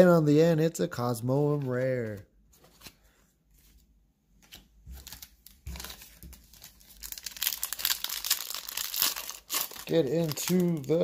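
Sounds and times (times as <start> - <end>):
foil wrapper crinkling: 5.0 - 11.0.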